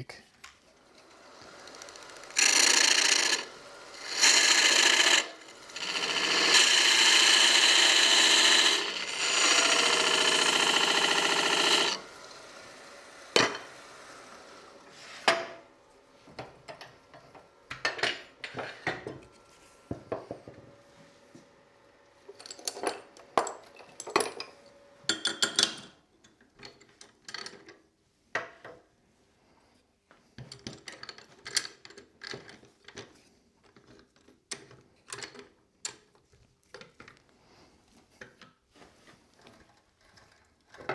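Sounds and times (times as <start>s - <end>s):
lathe tool scraping wood: 0.8s - 16.2s.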